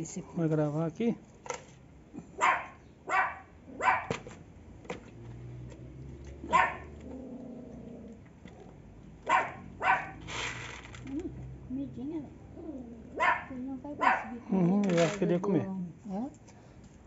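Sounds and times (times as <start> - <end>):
dog barking: 2.4 - 4.2, 6.5 - 6.9, 9.3 - 10.3, 13.2 - 14.4.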